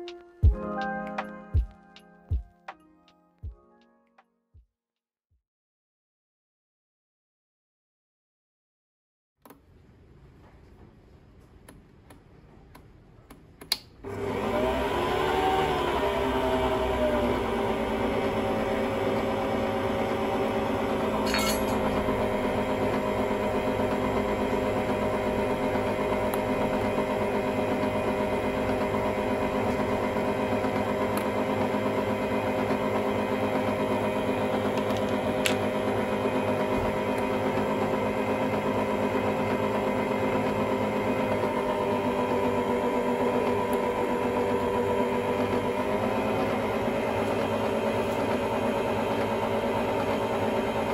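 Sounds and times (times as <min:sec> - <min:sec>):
stand mixer motor whine: 0:14.0 - 0:50.9.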